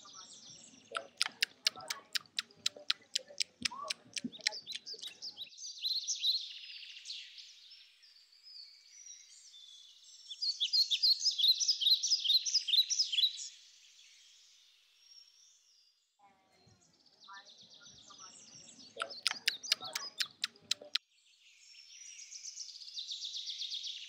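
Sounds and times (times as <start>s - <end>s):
birds chirping: 0.0s - 5.5s, 17.3s - 21.0s
short nibbling clicks: 0.9s - 5.2s, 19.0s - 21.0s.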